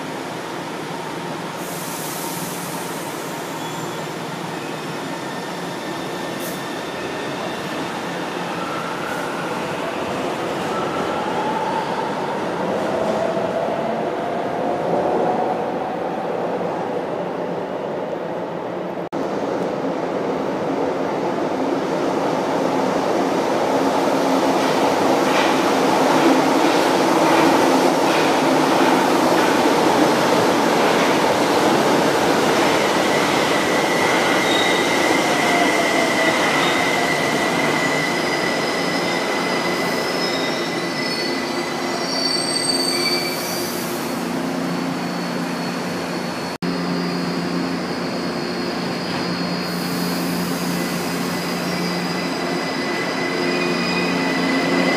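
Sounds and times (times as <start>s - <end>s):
train wheels rushing on rail: 21.9s - 54.9s.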